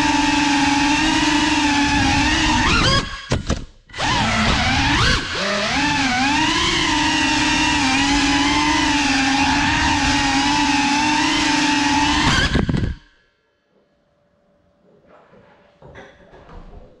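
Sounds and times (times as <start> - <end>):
drone propellers whining: 0.0 - 13.1.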